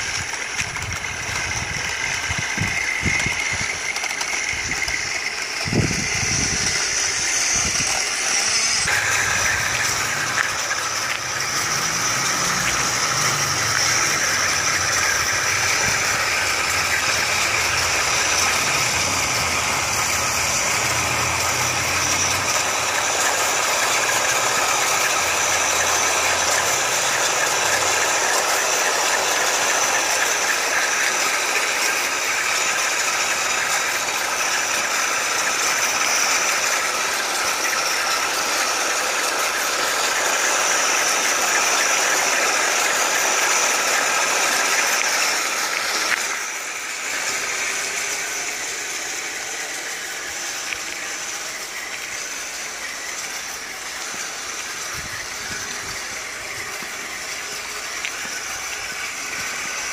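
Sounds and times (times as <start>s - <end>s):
electric motors whirring: 0.0s - 59.9s
plastic tracks rattling on tarmac: 0.0s - 59.9s.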